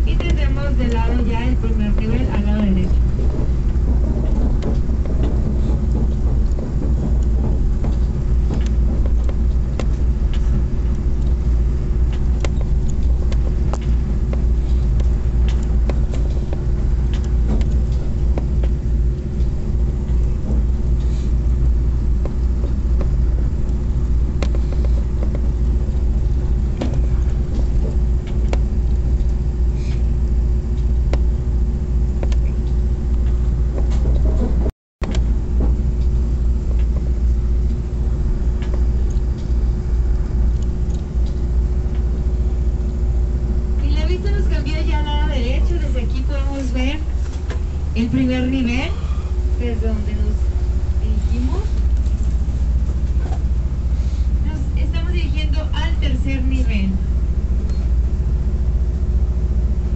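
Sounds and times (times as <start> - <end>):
train rumbling along track: 0.0 - 59.9
wheels clicking and knocking: 1.9 - 20.8.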